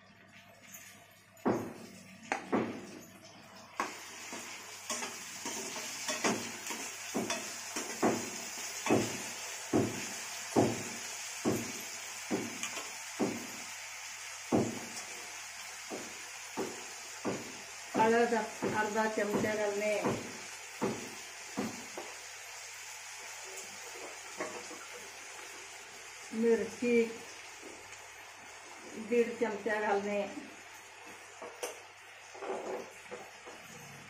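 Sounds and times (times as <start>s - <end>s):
frying sizzle: 0.0s - 34.0s
metal spoon scraping pan: 4.2s - 9.2s.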